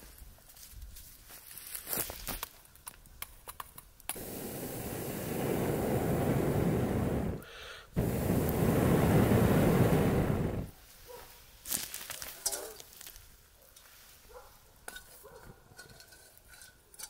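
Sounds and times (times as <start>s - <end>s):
blowing through metal tube: 4.1s - 10.7s
flames flaring: 4.1s - 10.8s
breath drawn in: 6.7s - 10.7s.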